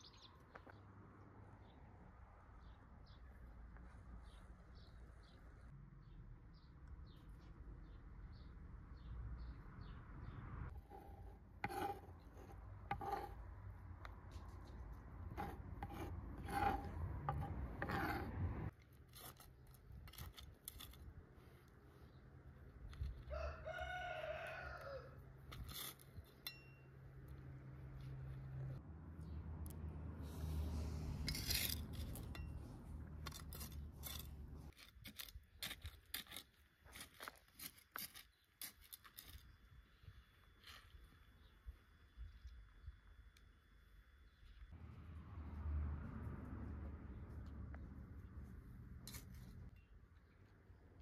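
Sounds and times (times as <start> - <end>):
rooster crowing: 23.3 - 25.2.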